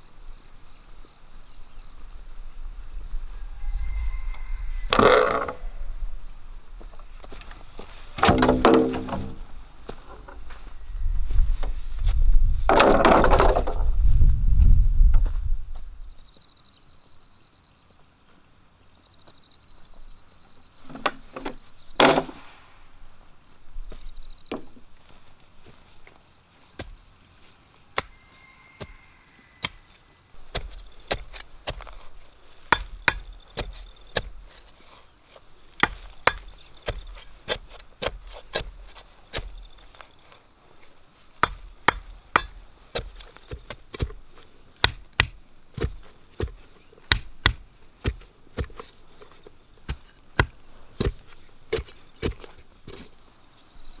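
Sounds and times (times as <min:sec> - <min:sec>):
bamboo poles knocking: 0:04.9 - 0:05.6, 0:08.2 - 0:10.4, 0:12.7 - 0:13.8, 0:32.7 - 0:34.3, 0:35.8 - 0:38.2, 0:41.4 - 0:44.2, 0:44.8 - 0:48.9
digging bar striking hard soil: 0:30.4 - 0:34.7, 0:35.7 - 0:40.0, 0:41.4 - 0:53.1.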